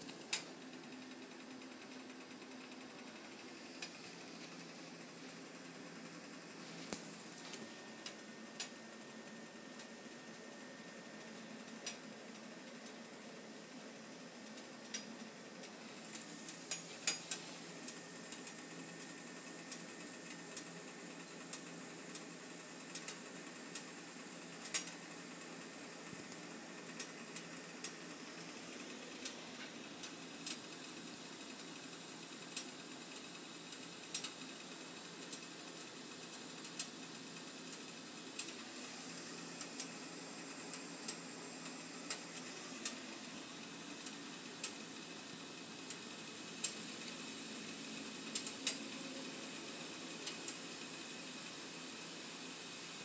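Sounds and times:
water heating hiss: 0.0s - 53.0s
sharp ticks and pops: 0.3s - 1.0s, 14.5s - 18.8s, 22.9s - 24.0s, 24.6s - 25.5s, 30.0s - 34.5s, 48.3s - 48.8s.

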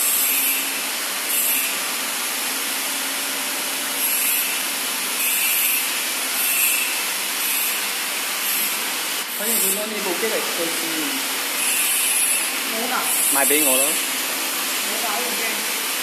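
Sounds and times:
machinery hum and hiss: 0.0s - 16.0s.

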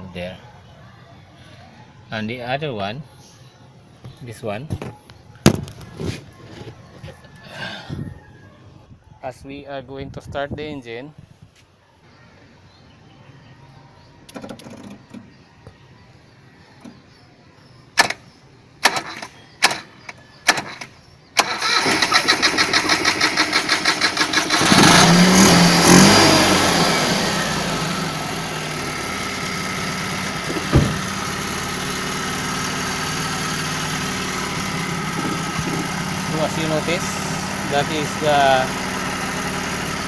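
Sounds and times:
car engine cranking and idling: 20.5s - 40.0s.

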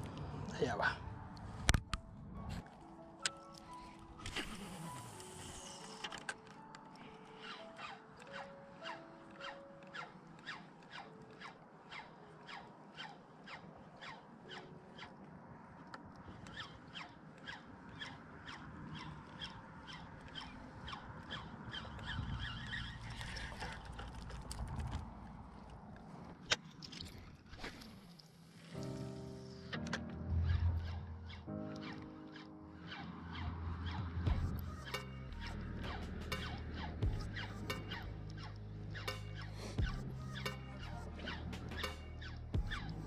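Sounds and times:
fishing reel cranking squeaky tick: 4.2s - 15.2s, 16.2s - 23.7s, 30.8s - 43.0s
low rumble: 33.5s - 39.2s.

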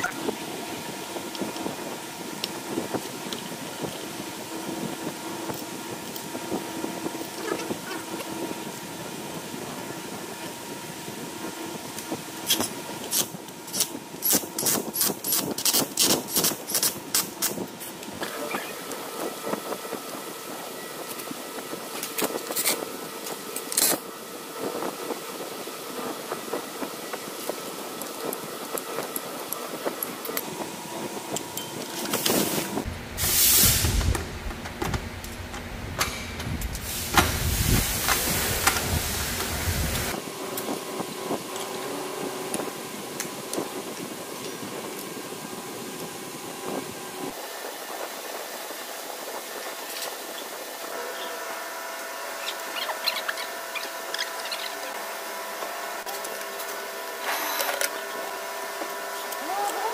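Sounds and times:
loud hissing burst: 33.2s - 34.1s.

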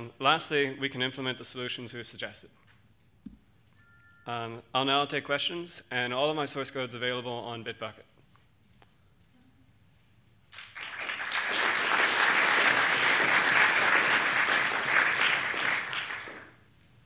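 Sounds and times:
audience applauding: 10.5s - 16.7s.

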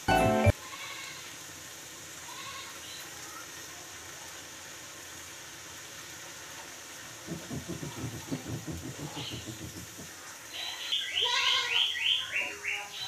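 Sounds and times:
gas burner hissing: 6.8s - 10.5s
spatula knocking and scraping a pan: 7.2s - 10.2s.

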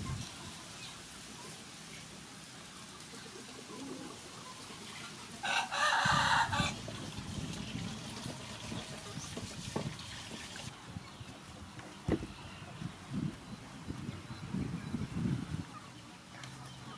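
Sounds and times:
rooster crowing: 5.4s - 6.8s.

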